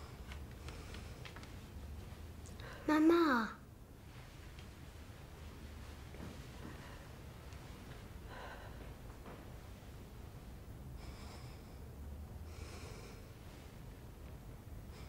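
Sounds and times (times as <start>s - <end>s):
person breathing heavily: 0.0s - 1.5s, 8.1s - 9.4s, 11.0s - 13.8s.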